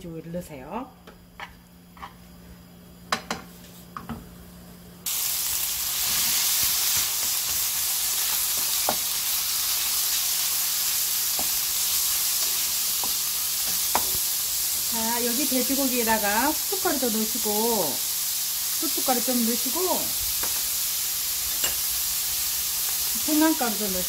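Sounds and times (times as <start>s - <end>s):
meat sizzling in pan: 5.0s - 24.0s
spoon knocking on pan: 13.0s - 14.2s.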